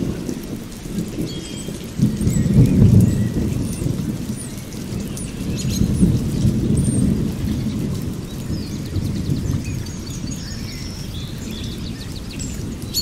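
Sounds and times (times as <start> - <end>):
bird chirps: 8.7 - 13.0.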